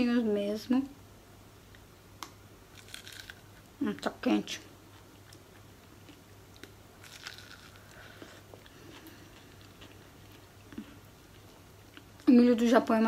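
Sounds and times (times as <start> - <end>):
chewing corn on the cob: 2.8 - 4.1, 4.8 - 12.3.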